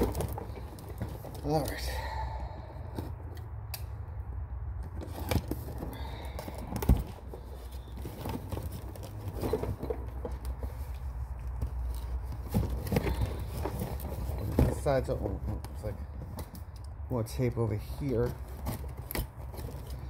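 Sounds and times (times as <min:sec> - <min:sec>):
cardboard box handled: 0:00.0 - 0:01.8, 0:05.0 - 0:16.3.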